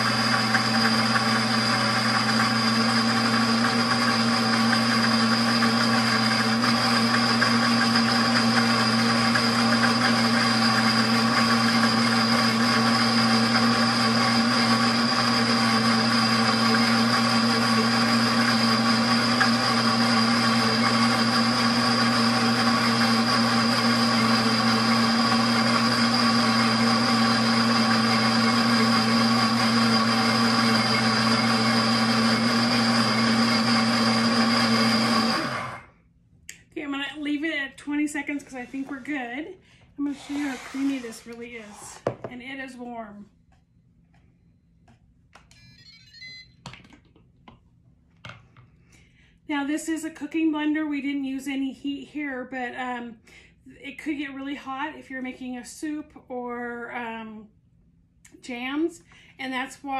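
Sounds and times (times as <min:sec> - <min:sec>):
blender motor whining: 0:00.0 - 0:35.9, 0:40.0 - 0:42.1.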